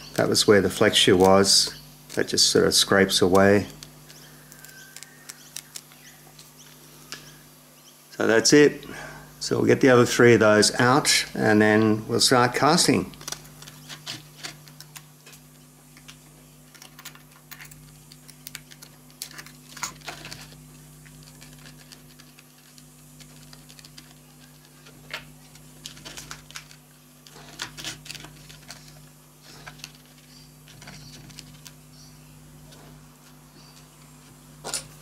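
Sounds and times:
low steady hum: 0:00.0 - 0:35.0.

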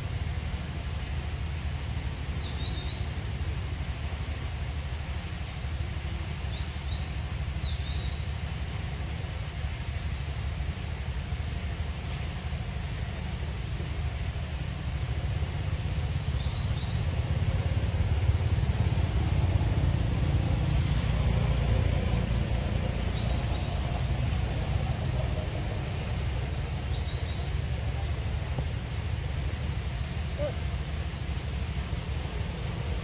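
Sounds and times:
bird chirping: 0:23.1 - 0:24.0, 0:26.8 - 0:27.8, 0:30.3 - 0:30.6.

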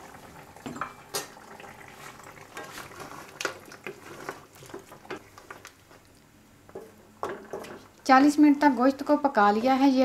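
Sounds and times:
wooden spatula scraping a wok: 0:02.5 - 0:05.6.

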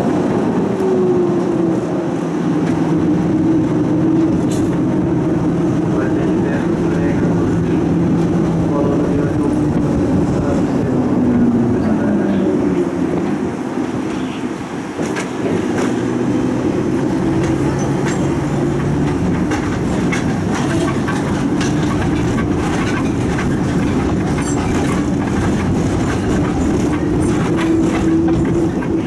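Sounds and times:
tram rolling rumble: 0:00.0 - 0:29.0
wheels clacking over rail joints: 0:00.0 - 0:29.0.

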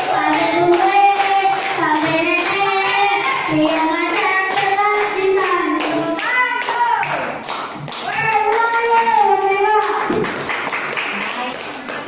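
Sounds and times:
girls singing: 0:00.0 - 0:07.4, 0:08.0 - 0:10.1
hands clapping in time: 0:00.0 - 0:12.0.

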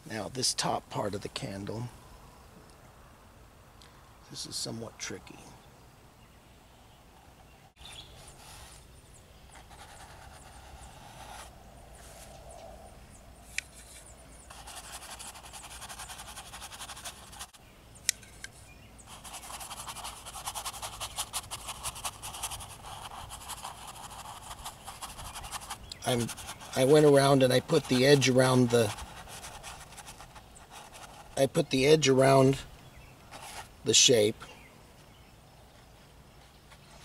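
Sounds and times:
paintbrush scrubbing paint: 0:09.6 - 0:12.2, 0:13.7 - 0:17.6, 0:19.1 - 0:32.4.

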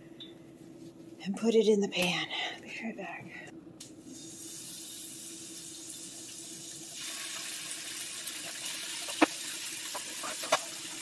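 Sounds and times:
chicken sizzling in hot oil: 0:04.1 - 0:11.0.

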